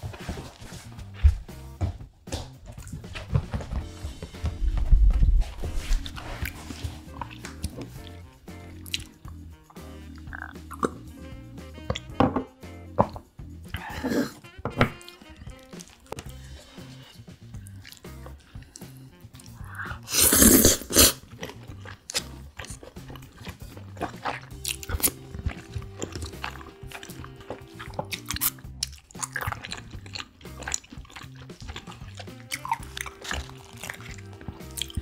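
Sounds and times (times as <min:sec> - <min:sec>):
soft background music: 0:00.0 - 0:35.0
chewing crunchy seafood: 0:06.0 - 0:12.2, 0:13.8 - 0:35.0.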